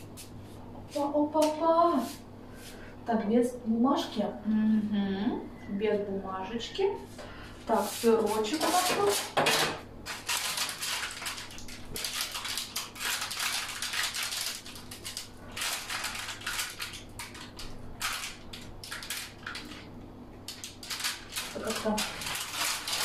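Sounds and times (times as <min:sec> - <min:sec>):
spatula scraping parchment: 0:07.7 - 0:09.4, 0:20.8 - 0:23.0.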